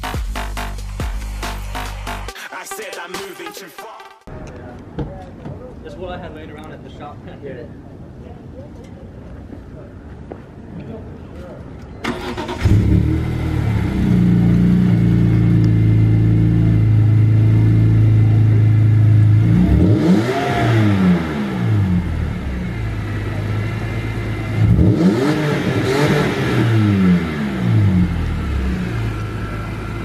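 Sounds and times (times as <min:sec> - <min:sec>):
car engine idling and revving: 0:12.1 - 0:30.0.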